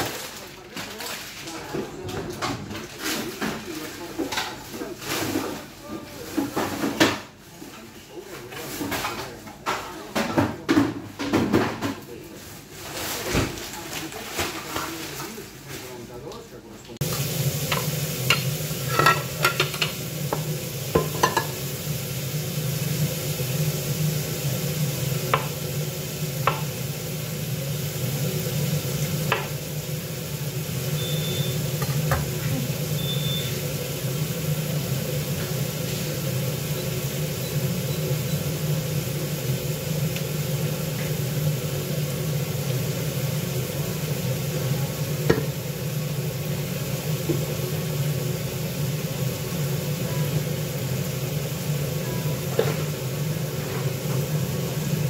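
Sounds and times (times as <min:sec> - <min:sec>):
faint high beeps: 0:31.0 - 0:31.6, 0:32.9 - 0:33.6.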